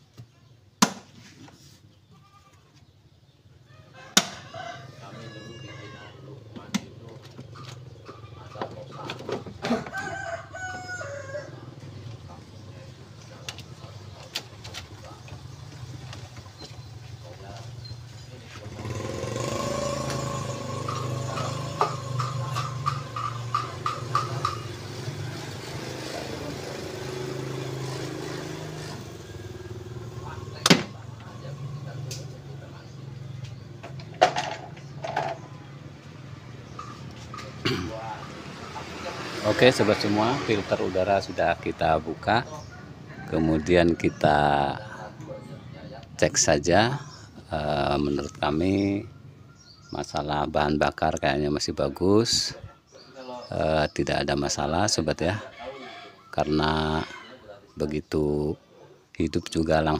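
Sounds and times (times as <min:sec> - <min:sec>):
farm animal cry: 0:02.0 - 0:02.9, 0:03.6 - 0:06.6, 0:07.4 - 0:13.0, 0:17.6 - 0:24.6, 0:42.2 - 0:45.8, 0:55.0 - 0:57.7.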